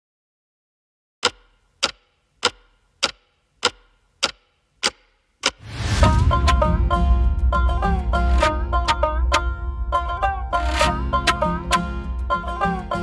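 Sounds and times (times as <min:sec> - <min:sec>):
sharp ticks: 0:01.2 - 0:05.6
rushing swell: 0:05.6 - 0:12.3
instrumental music with bass beat: 0:06.0 - 0:13.0.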